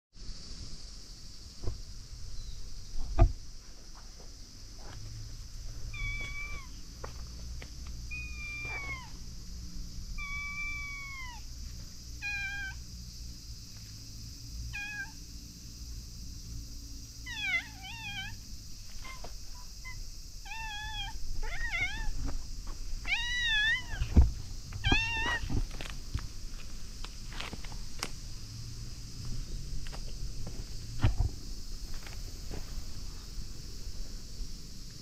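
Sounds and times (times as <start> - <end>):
thump: 1.6 - 1.8, 3.0 - 3.4, 24.0 - 25.7, 31.0 - 31.4
cat meowing: 5.9 - 6.7, 8.1 - 9.2, 10.2 - 11.4, 12.2 - 12.8, 14.7 - 15.2, 17.3 - 18.4, 19.8 - 22.2, 23.1 - 24.1, 24.8 - 25.5.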